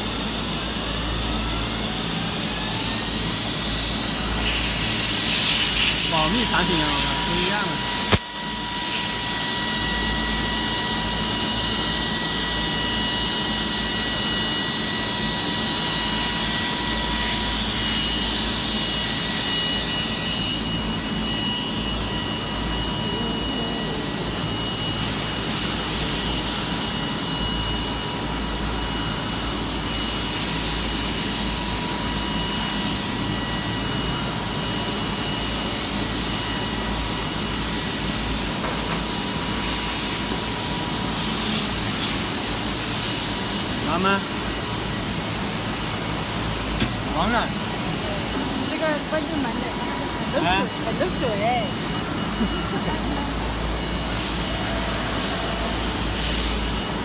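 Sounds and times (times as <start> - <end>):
rushing noise of cutting and coolant: 0.0 - 57.0
milling spindle whine: 0.2 - 38.4.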